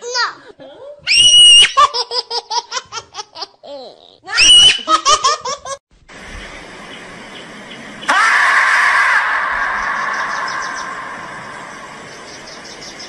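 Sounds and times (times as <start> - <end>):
high-pitched laughter: 1.6 - 5.8
steady hiss: 5.9 - 8.6, 9.2 - 13.0.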